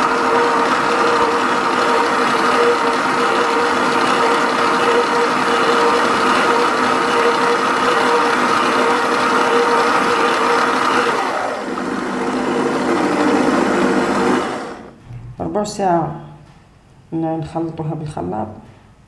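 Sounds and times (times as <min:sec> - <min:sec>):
stand mixer motor whine: 0:00.0 - 0:15.0.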